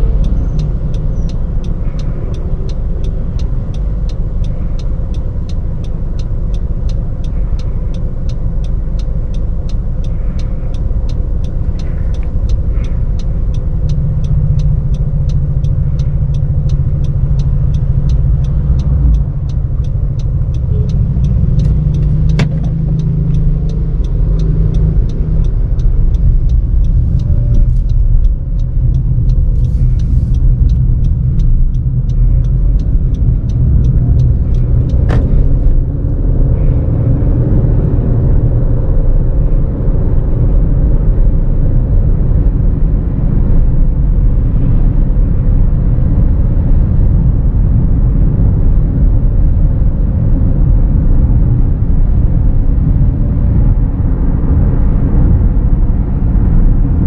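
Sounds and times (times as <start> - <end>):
even ticking: 0.0 - 37.8
car engine and road rumble: 0.0 - 57.0.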